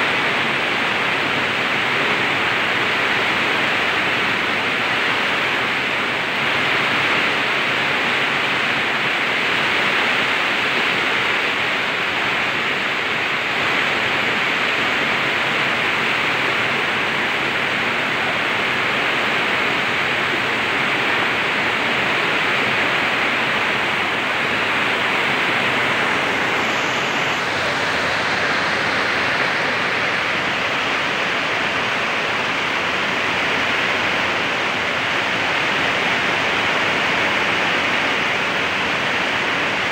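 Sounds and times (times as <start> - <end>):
floodwater rushing down rocks: 0.0 - 39.9
heavy rain: 0.0 - 39.9.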